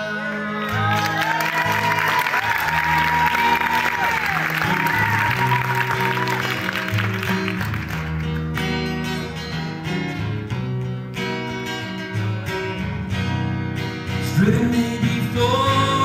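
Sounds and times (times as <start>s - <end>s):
audience applause: 0.7s - 9.0s
acoustic guitar strummed: 2.8s - 16.0s.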